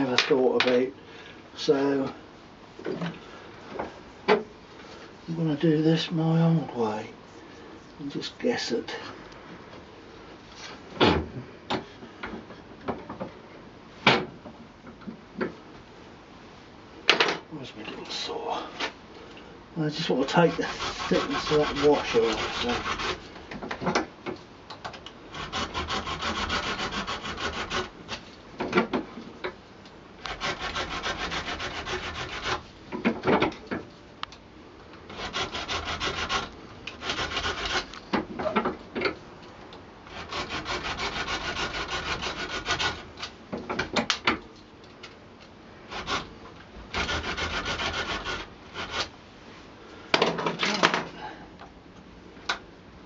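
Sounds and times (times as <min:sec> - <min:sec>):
quick rubbing strokes on wood: 0:20.0 - 0:23.3.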